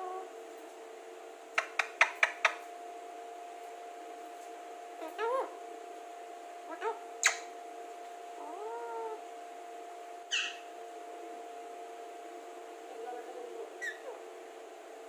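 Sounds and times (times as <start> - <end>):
soft parakeet chatter: 0.0 - 0.4, 1.5 - 2.7, 4.9 - 5.7, 6.6 - 9.3, 10.2 - 10.8, 12.9 - 14.4
parakeet squawks and whistles: 6.8 - 7.5, 10.3 - 10.7, 13.8 - 14.2.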